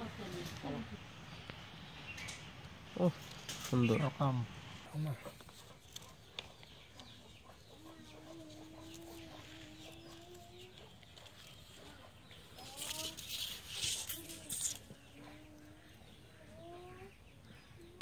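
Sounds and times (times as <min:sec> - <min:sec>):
chicken calling: 0:05.0 - 0:17.1
rustling and handling noise: 0:08.0 - 0:15.1.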